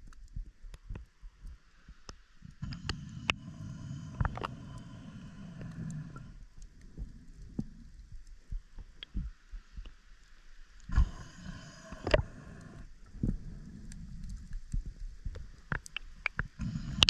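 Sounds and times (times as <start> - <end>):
muffled underwater rumble: 0.0 - 10.0, 10.8 - 17.0
underwater clicks and thumps: 6.8 - 10.0, 13.2 - 17.0.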